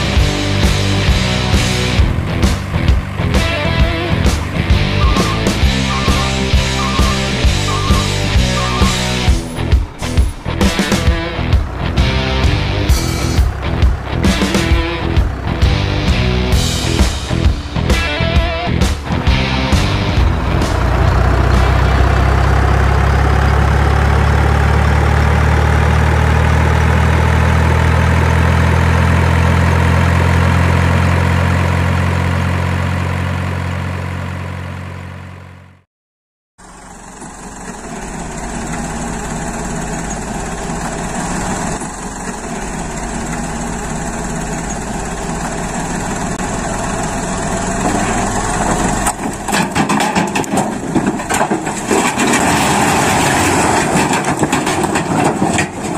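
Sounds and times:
higher steady engine sound: 0.0 - 35.8, 36.6 - 55.9
truck engine idling: 0.0 - 35.8, 36.6 - 55.9
load pouring from dump bed: 47.7 - 55.9.

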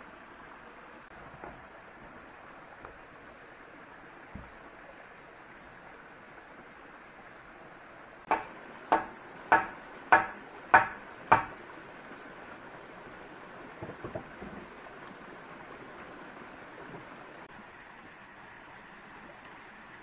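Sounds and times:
axe chopping wood: 8.3 - 11.5.

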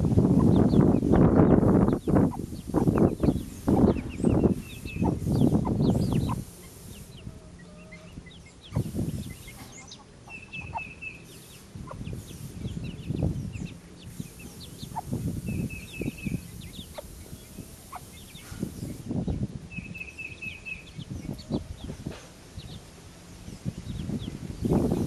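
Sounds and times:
chicks peeping: 0.0 - 25.0
hen clucking: 0.4 - 18.7.

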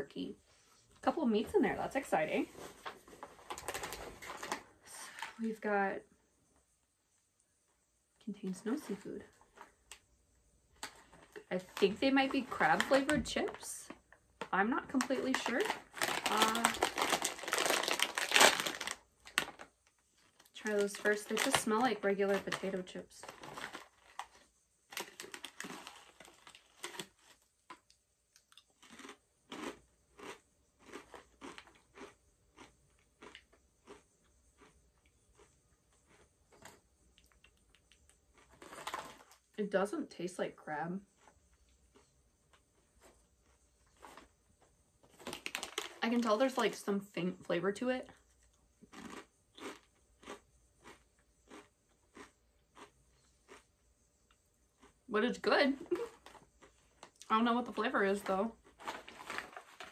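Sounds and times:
potato chips crunching: 14.4 - 39.4, 45.1 - 46.8, 48.2 - 53.8, 54.8 - 59.9.

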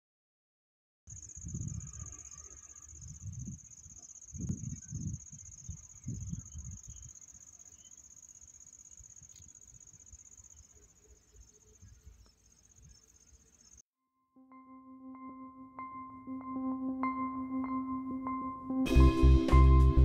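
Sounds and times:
insects chirring: 1.1 - 13.8.

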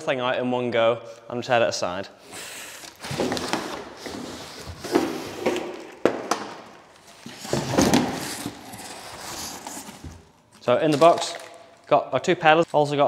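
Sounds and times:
cardboard rustling and scraping: 2.8 - 6.1, 6.9 - 11.4.

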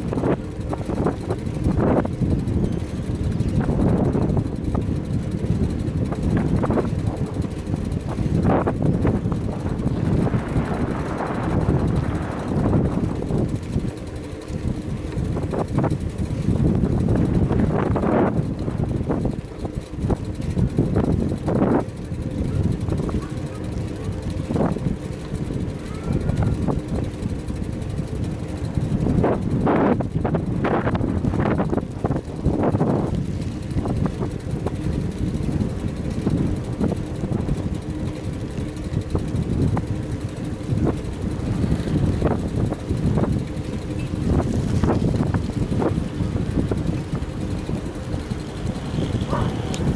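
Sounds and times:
tyres on road: 0.0 - 49.9
wind rumbling on microphone: 0.0 - 49.9.

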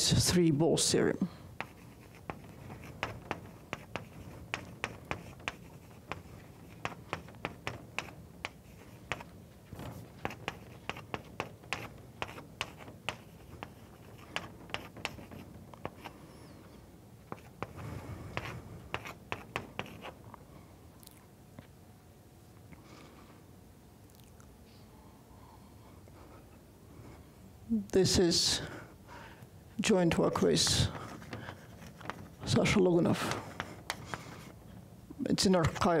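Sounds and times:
chalk tapping and scratching on blackboard: 1.6 - 16.2, 17.2 - 20.2, 30.4 - 34.6.

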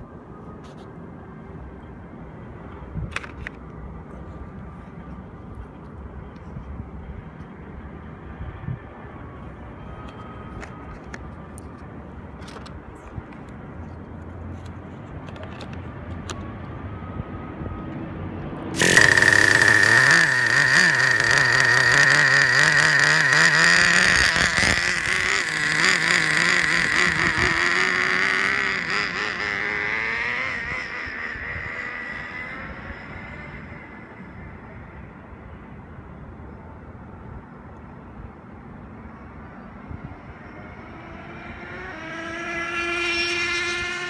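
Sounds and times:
rc car engine whine: 18.6 - 35.6, 39.0 - 44.0.

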